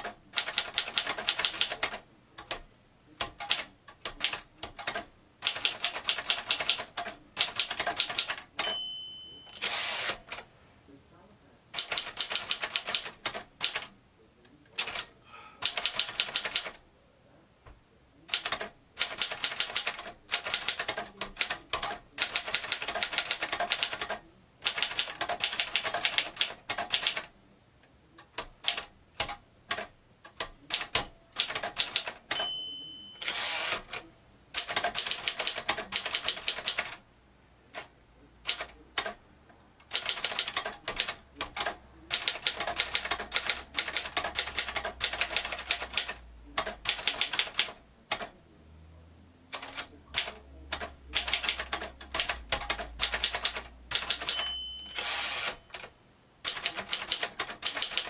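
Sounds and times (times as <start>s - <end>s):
typewriter margin bell: 8.0s - 10.3s, 31.4s - 34.0s, 52.7s - 55.8s
typewriter carriage return sweep: 9.5s - 10.4s, 33.2s - 34.0s, 49.6s - 55.9s, 56.5s - 58.0s
typewriter key clacks: 49.6s - 55.1s, 56.5s - 58.0s.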